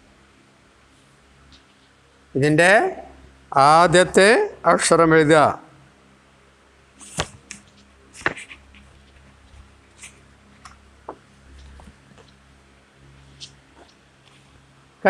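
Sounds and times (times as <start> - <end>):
paper and card clicks and taps: 7.0 - 9.3.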